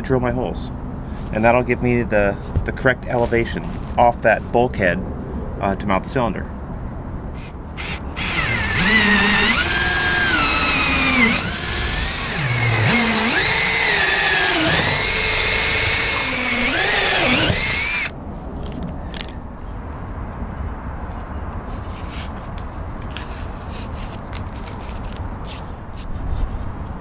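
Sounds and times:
power drill boring through plastic: 7.4s - 18.1s.

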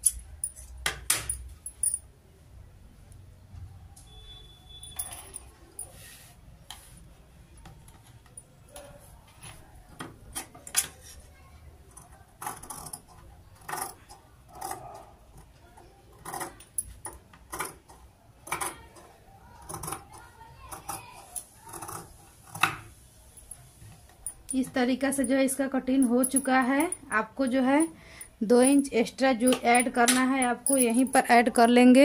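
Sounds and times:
bangles jingling: 1.3s - 2.1s, 4.7s - 6.0s, 24.2s - 32.0s.

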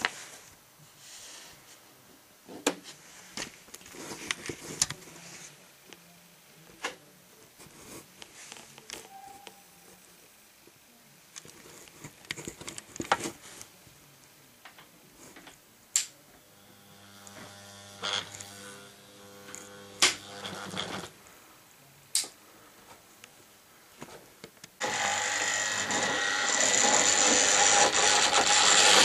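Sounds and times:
small electric motor humming: 16.4s - 21.1s, 24.8s - 29.0s.

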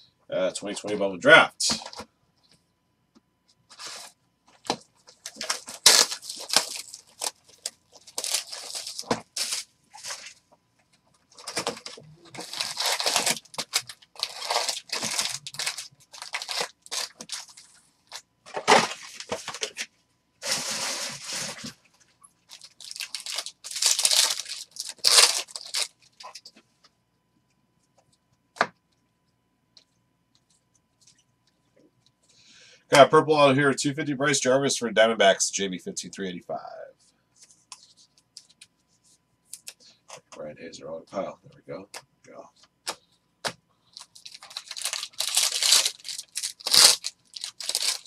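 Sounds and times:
card wrapping torn and crinkled: 4.7s - 10.4s, 11.3s - 19.8s, 22.4s - 26.5s, 44.0s - 48.0s.

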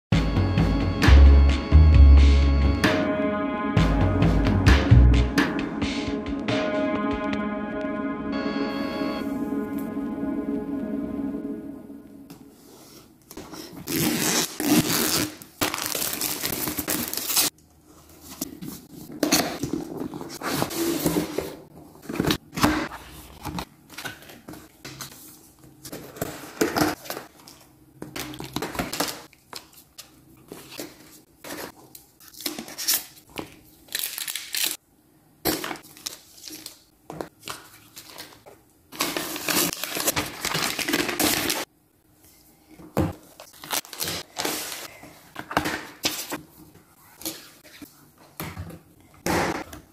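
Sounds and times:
plastic wrap tearing and crinkling: 13.8s - 17.5s, 33.8s - 34.8s, 38.0s - 41.7s, 43.4s - 44.9s.

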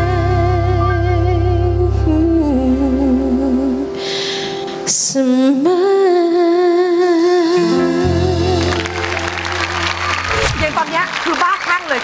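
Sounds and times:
low bass note: 0.0s - 3.8s
woman singing a ballad: 0.0s - 10.0s
soft accompaniment: 0.0s - 11.2s.

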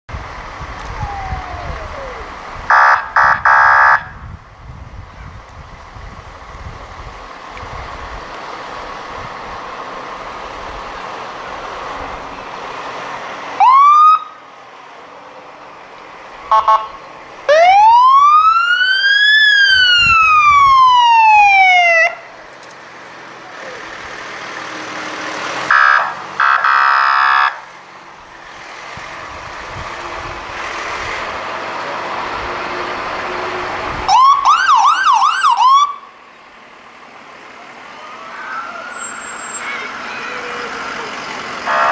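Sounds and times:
engine hum: 0.1s - 41.9s
emergency sirens wailing: 0.2s - 4.3s, 7.2s - 30.6s, 31.2s - 41.9s
loud horn blast: 16.5s - 17.0s, 41.7s - 41.9s.

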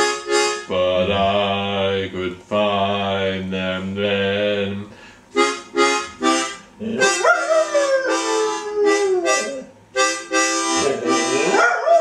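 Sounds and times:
harmonica chords: 0.0s - 11.7s
dog howling: 6.8s - 9.7s, 11.5s - 12.0s.

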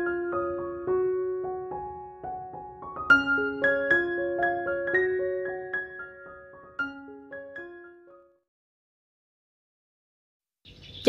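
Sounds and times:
gentle piano melody: 0.0s - 8.5s.

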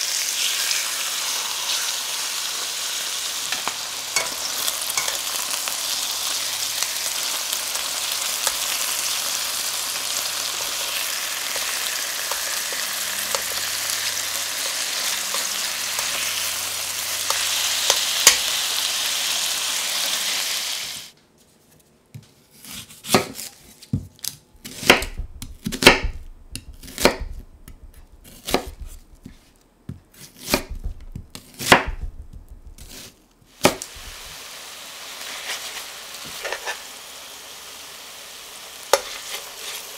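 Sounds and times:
chicken sizzling in a pot: 0.0s - 21.2s, 33.6s - 39.9s
knife chopping on wooden board: 22.6s - 29.4s, 30.1s - 34.2s.

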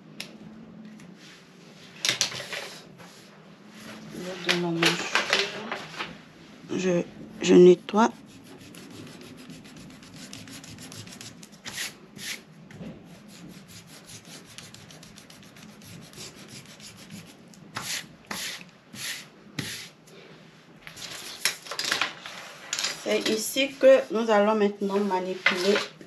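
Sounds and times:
eraser rubbing on paper: 7.4s - 12.4s, 13.1s - 19.9s.

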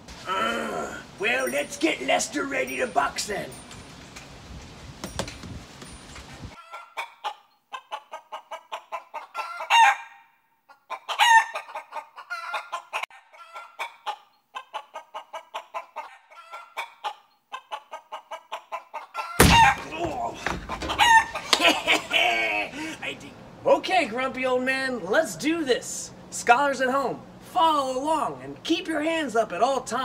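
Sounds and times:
chicken clucking: 6.6s - 10.0s, 10.7s - 19.4s, 20.3s - 22.0s
chicken squawks: 6.6s - 19.8s, 20.7s - 21.8s.

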